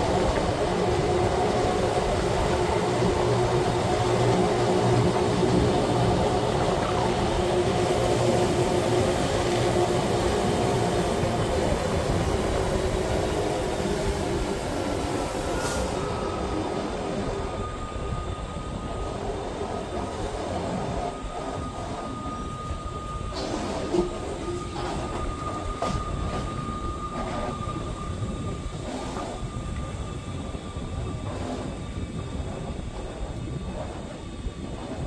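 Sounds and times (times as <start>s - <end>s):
train rumbling and rattling: 0.0s - 35.0s.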